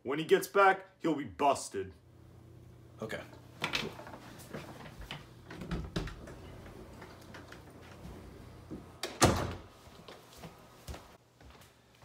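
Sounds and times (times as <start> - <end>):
door thudding shut: 9.1 - 9.7
light footsteps: 9.7 - 12.0.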